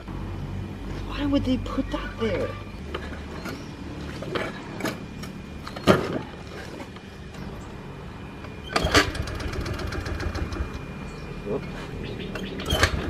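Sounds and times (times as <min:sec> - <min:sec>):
scooter engine puttering: 0:08.6 - 0:11.2, 0:12.2 - 0:13.0.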